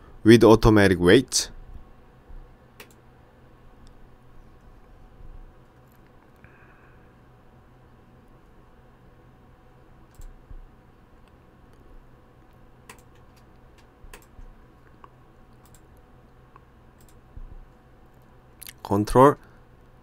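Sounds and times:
low steady hum: 0:00.0 - 0:20.0
mouse and keyboard clicks: 0:12.9 - 0:14.4.

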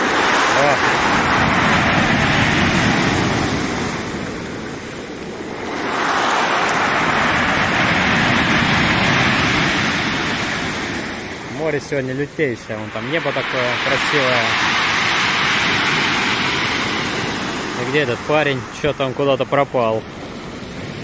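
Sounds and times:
surf breaking on pebble beach: 0:00.0 - 0:21.0.

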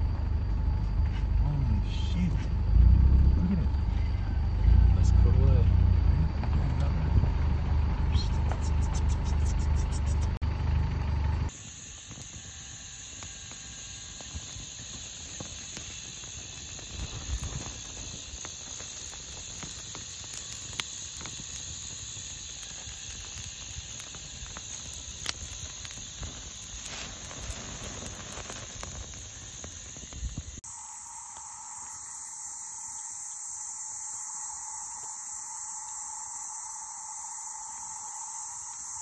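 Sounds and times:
insects chirring: 0:00.0 - 0:39.0
campfire crackling and popping: 0:06.4 - 0:10.4, 0:11.5 - 0:31.5.

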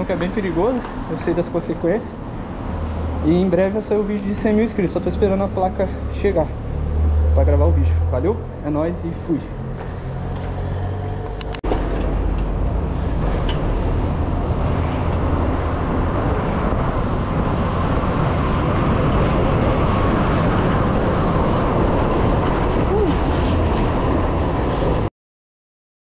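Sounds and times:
wind buffeting microphone: 0:09.5 - 0:25.1.

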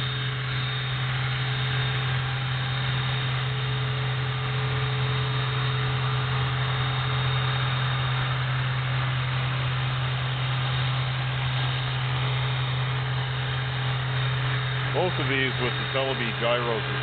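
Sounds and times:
helicopter rotor drone: 0:00.0 - 0:17.0
high motor whine: 0:00.0 - 0:17.0.

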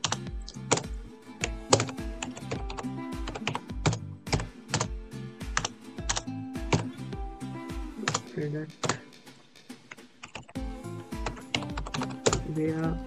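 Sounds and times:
keyboard typing: 0:00.0 - 0:04.9, 0:05.5 - 0:06.9, 0:07.9 - 0:09.1, 0:09.9 - 0:12.6
background music with beat: 0:00.0 - 0:13.0.

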